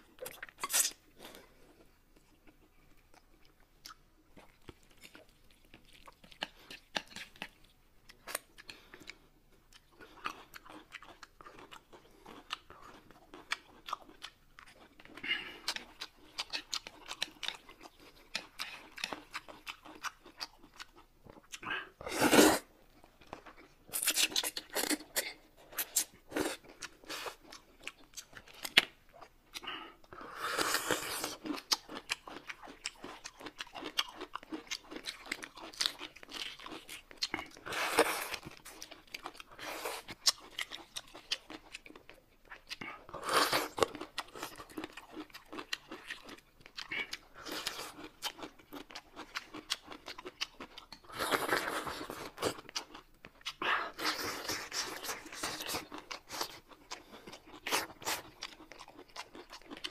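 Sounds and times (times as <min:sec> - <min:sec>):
chewing and crunching food: 0:00.0 - 0:59.9
slurping noodles: 0:22.0 - 0:22.7.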